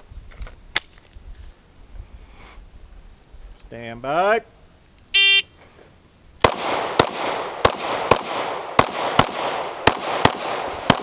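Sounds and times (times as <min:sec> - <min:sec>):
pistol shots echoing: 0:06.4 - 0:11.0.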